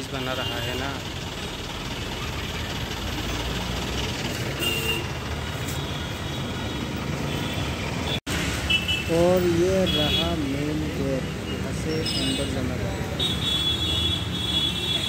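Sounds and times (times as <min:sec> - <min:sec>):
bus engine close by: 0:00.0 - 0:08.1
vehicle engines running: 0:00.0 - 0:15.0.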